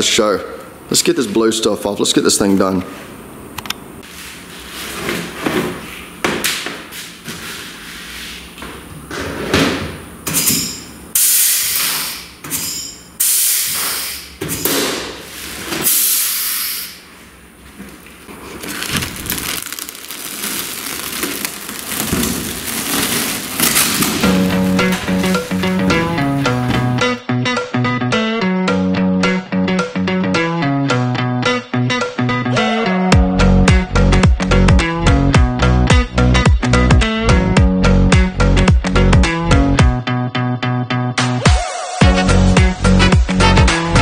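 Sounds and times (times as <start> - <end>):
compressed air hissing: 13.2 - 14.4, 15.8 - 17.1
plastic film crinkling: 18.0 - 26.8.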